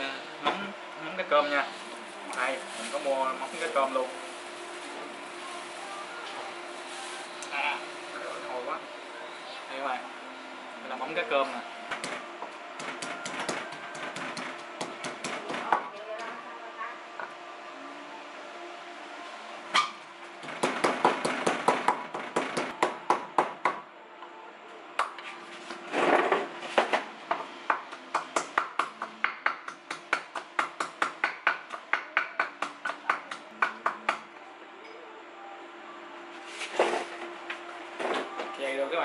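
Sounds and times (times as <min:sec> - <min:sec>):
pestle pounding in wooden mortar: 0:12.8 - 0:15.9, 0:20.4 - 0:23.8, 0:27.7 - 0:34.2.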